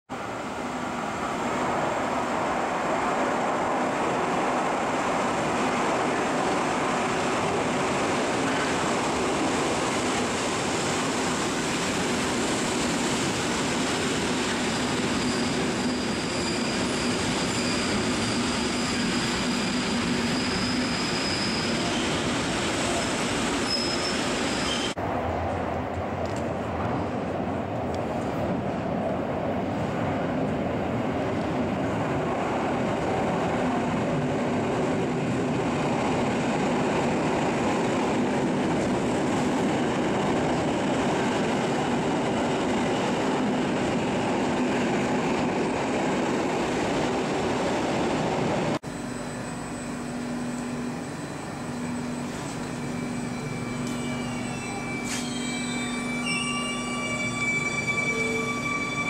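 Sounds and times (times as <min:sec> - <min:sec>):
train wheels rumbling on rails: 0:00.4 - 0:59.0
high squeal: 0:13.9 - 0:25.0, 0:48.8 - 0:59.0.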